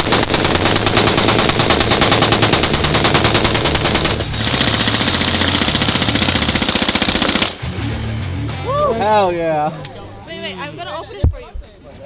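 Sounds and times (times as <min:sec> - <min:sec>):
automatic rifle fire: 0:00.0 - 0:07.6.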